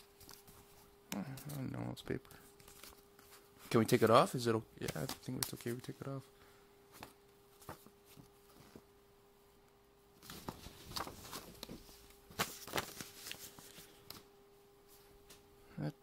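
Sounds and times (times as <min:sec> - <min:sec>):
paper sleeve rustling and crinkling: 0:10.2 - 0:14.2.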